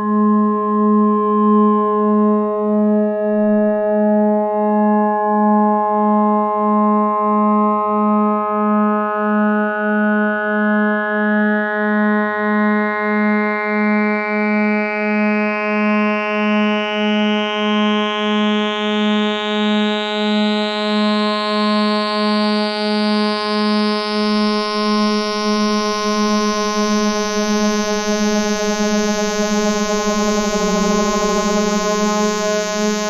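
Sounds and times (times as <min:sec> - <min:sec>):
synthesizer drone pulsing: 0:24.6 - 0:33.0
bright synth shimmer rising: 0:25.9 - 0:33.0.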